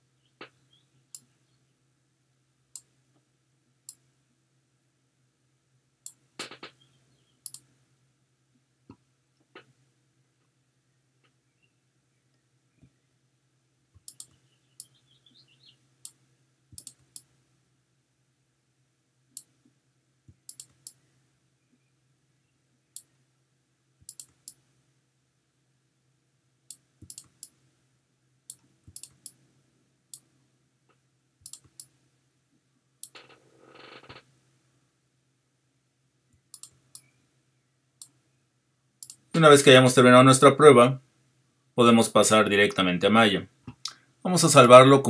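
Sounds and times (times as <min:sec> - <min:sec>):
faint steady hum: 0:00.0 - 0:45.0
computer mouse clicking: 0:07.4 - 0:07.7, 0:14.0 - 0:14.9, 0:16.0 - 0:17.3, 0:20.3 - 0:21.0, 0:24.0 - 0:24.6, 0:26.7 - 0:27.6, 0:28.5 - 0:29.4, 0:31.4 - 0:32.0, 0:36.4 - 0:37.1, 0:39.0 - 0:39.3.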